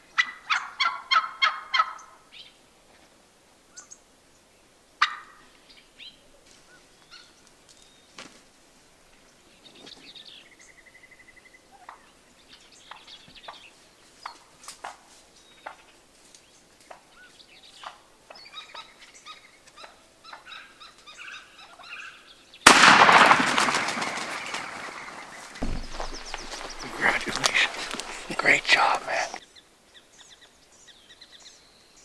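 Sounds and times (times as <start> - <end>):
turkeys clucking and gobbling: 0.2 - 2.1, 5.0 - 5.3, 23.6 - 28.5
loud shotgun shot: 22.7 - 29.1.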